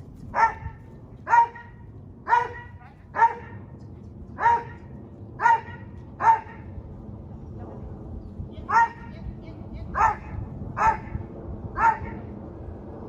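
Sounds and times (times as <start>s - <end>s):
dog barking: 0.4s - 3.6s, 4.4s - 6.7s, 8.7s - 9.1s, 10.0s - 11.1s, 11.8s - 12.2s.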